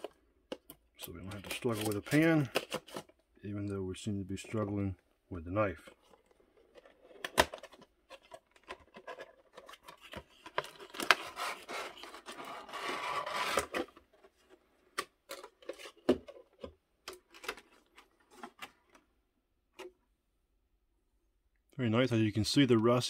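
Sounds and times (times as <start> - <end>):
plastic crackling: 0.0 - 3.2
knife scraping packaging: 1.3 - 3.1, 5.9 - 14.4.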